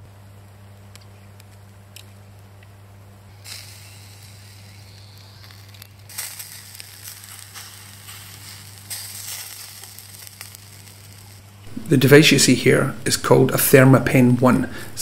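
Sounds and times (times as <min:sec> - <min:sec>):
meat sizzling on a grill: 0:03.3 - 0:12.5.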